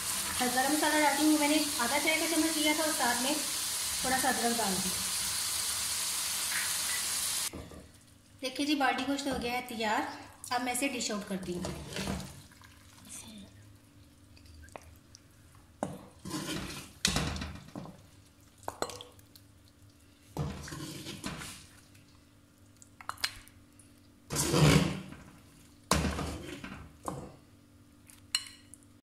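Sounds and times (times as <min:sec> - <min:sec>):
steel ladle scraping pot: 0:16.2 - 0:16.9, 0:20.5 - 0:21.6, 0:24.3 - 0:25.1.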